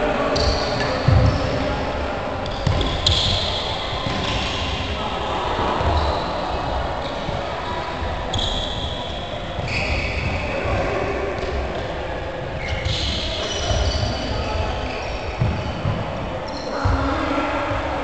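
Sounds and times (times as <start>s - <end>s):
balls bouncing on wooden floor: 2.4s - 4.5s.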